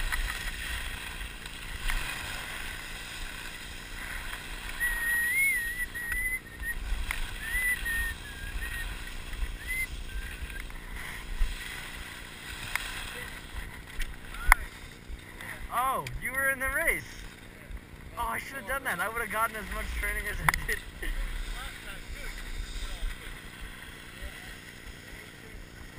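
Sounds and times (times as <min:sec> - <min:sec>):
skis carving on snow: 0:00.0 - 0:17.4, 0:18.2 - 0:25.9
wavering whistle-like tone: 0:04.7 - 0:10.6.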